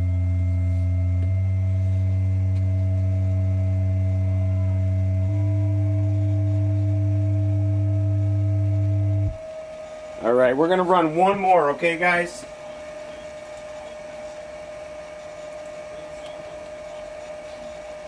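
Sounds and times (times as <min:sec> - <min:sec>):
subwoofer bass test tone: 0:00.0 - 0:09.4.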